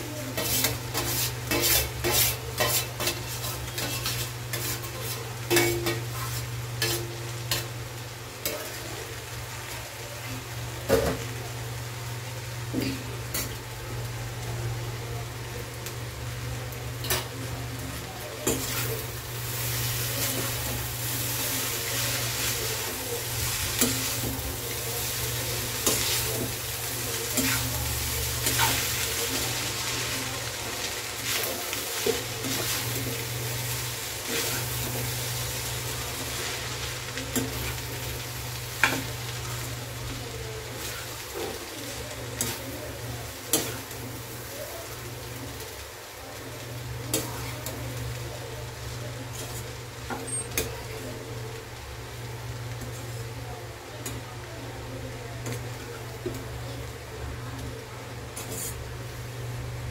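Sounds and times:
stir-fry sizzling: 0:00.0 - 0:59.9
spatula scraping metal pan: 0:00.3 - 0:07.6, 0:58.4 - 0:58.8.

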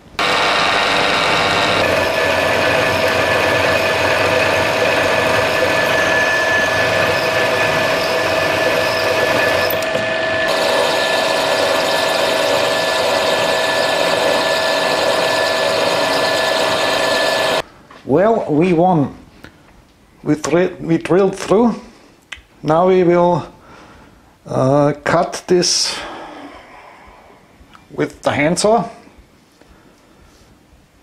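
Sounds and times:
drill press whining: 0:00.0 - 0:17.6, 0:25.9 - 0:27.5
drill boring through metal: 0:00.1 - 0:17.6.

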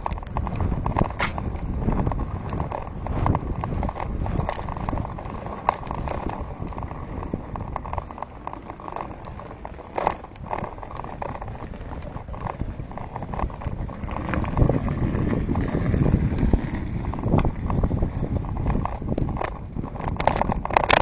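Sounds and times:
bicycle clattering knocks: 0:00.0 - 0:21.0
tyres on wet tarmac: 0:00.0 - 0:21.0
wind on microphone: 0:00.0 - 0:21.0.

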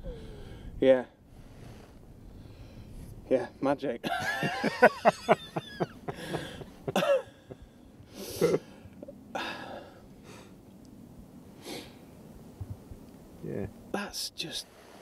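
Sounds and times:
man laughing: 0:04.0 - 0:07.6, 0:08.3 - 0:09.2
man coughing: 0:06.2 - 0:07.4, 0:08.4 - 0:08.7.

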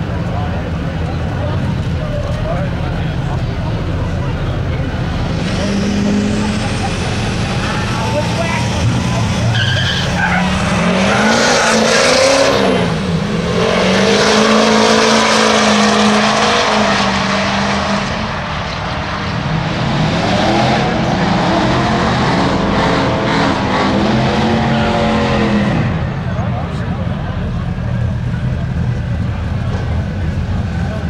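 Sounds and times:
engines revving and accelerating: 0:00.0 - 0:31.0.

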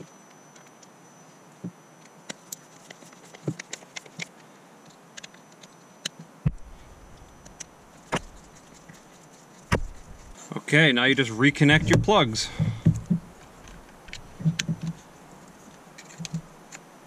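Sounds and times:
hard plastic parts clicking: 0:02.3 - 0:09.0, 0:11.6 - 0:16.8
screwdriver working: 0:02.4 - 0:04.3, 0:06.5 - 0:10.4, 0:11.6 - 0:16.8.

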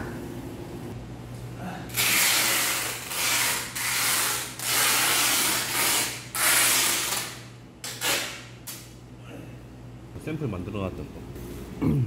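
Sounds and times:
packing tape pulled off roll: 0:01.9 - 0:08.9.

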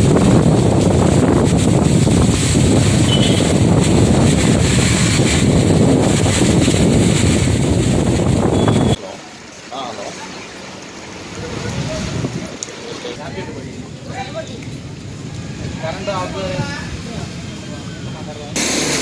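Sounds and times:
storm wind buffeting microphone: 0:00.0 - 0:09.0, 0:11.4 - 0:17.5
heavy rain: 0:00.0 - 0:19.0.

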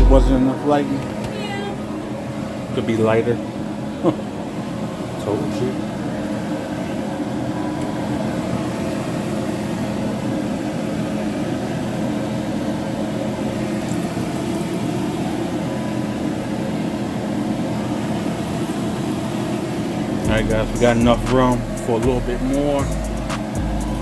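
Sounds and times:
low tones: 0:00.0 - 0:02.5, 0:20.2 - 0:24.0
steady mechanical hum: 0:00.0 - 0:24.0.

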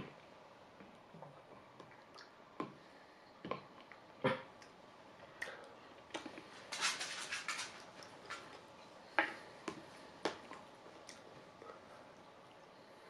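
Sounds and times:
mouth smacking: 0:01.8 - 0:02.8.

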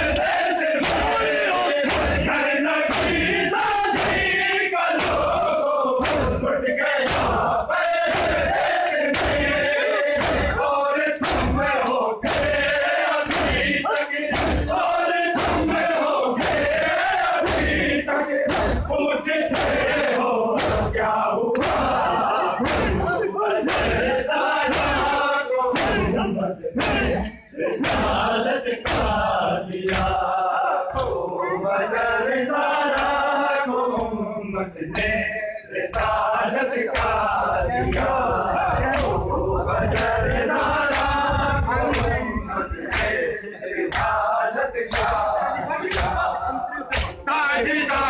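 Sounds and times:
crowd of men chanting: 0:00.0 - 0:48.0
hands slapping chests: 0:00.1 - 0:02.3, 0:02.9 - 0:17.9, 0:18.5 - 0:18.8, 0:19.5 - 0:19.9, 0:20.6 - 0:24.1, 0:25.8 - 0:26.2, 0:26.8 - 0:30.2, 0:36.9 - 0:38.1, 0:38.8 - 0:39.2, 0:40.9 - 0:41.2, 0:42.8 - 0:43.2, 0:43.8 - 0:44.2, 0:44.9 - 0:47.2.

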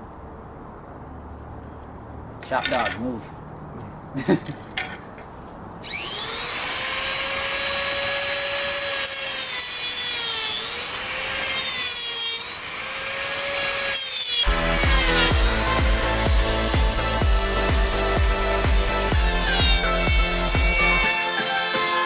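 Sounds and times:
rotary tool whining: 0:05.8 - 0:22.0
background music with a beat: 0:14.5 - 0:22.0.

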